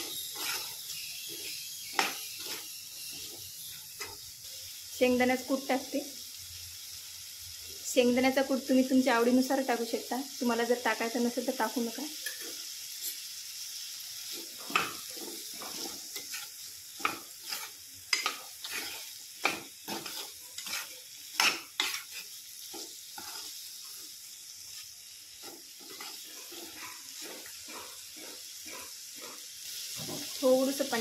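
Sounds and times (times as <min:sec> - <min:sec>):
spatula scraping a metal pan: 0:00.0 - 0:04.2, 0:12.0 - 0:13.4, 0:14.2 - 0:31.0
food sizzling in oil: 0:00.0 - 0:31.0.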